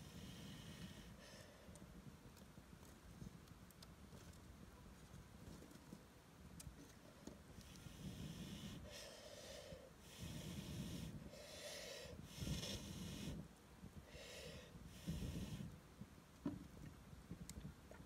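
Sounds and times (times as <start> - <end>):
heavy rhythmic breathing: 7.8 - 13.4.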